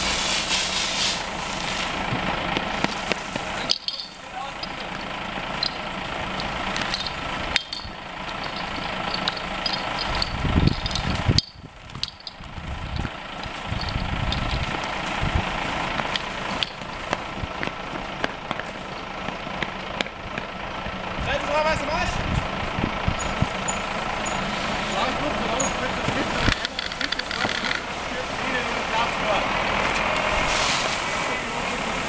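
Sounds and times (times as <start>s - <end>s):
engine running: 0.0s - 32.0s
fire hoses clicking and knocking: 2.1s - 20.5s, 25.5s - 27.9s.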